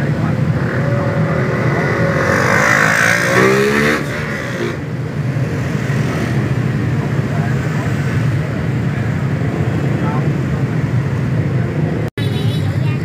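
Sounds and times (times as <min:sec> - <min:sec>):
engine revving: 0:00.0 - 0:08.2
motorbike and scooter engines: 0:00.0 - 0:13.0.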